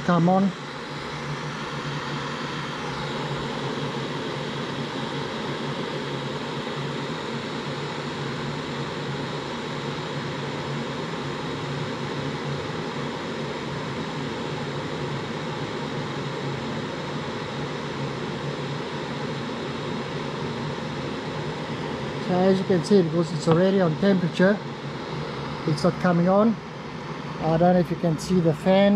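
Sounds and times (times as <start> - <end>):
small cooling fan: 0.0 - 28.9
electric kettle heating: 18.0 - 24.5.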